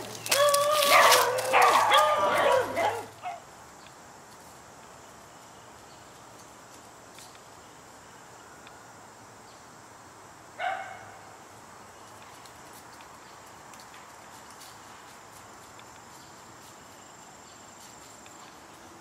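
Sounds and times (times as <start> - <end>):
faint outdoor background: 0.0 - 19.0
dog barking: 0.9 - 3.4, 10.6 - 11.2.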